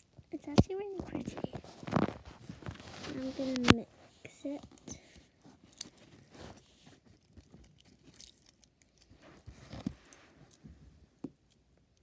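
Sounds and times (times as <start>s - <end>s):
small crackles and clicks: 0.0s - 3.9s, 4.5s - 12.0s
slime squishing: 4.5s - 10.6s.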